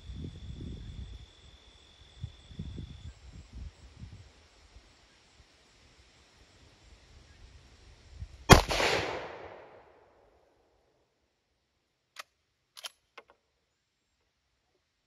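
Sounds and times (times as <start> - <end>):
rifle shot echoing: 8.5 - 9.9
rifle bolt metallic clicks: 12.2 - 13.4.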